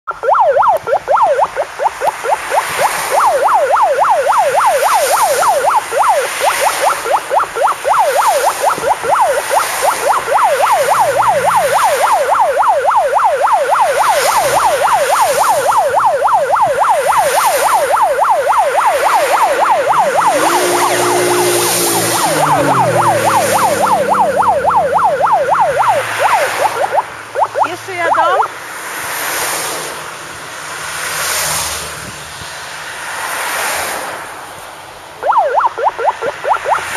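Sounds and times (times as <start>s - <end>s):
electronic yelp siren: 0.0s - 28.5s, 35.2s - 36.9s
cars passing: 0.1s - 36.9s
lower tone falling in pitch: 19.7s - 28.4s.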